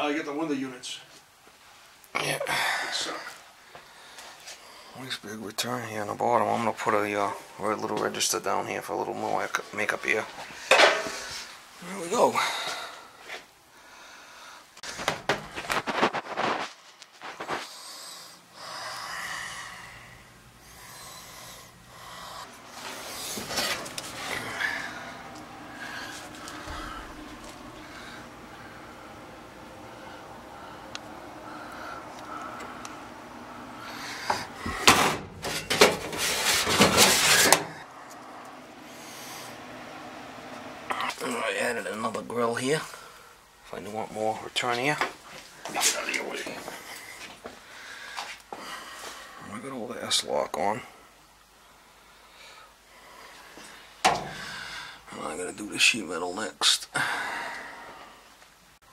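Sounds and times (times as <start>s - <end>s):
rustling and scraping: 14.8s - 17.8s, 22.6s - 27.7s, 34.2s - 37.8s
sheet metal clattering: 34.8s - 37.7s.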